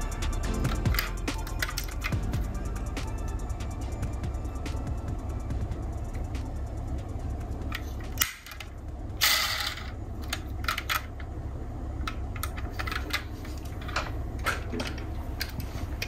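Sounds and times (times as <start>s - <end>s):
steady low hum: 0.0s - 16.0s
metal model cars clicking: 0.6s - 2.2s.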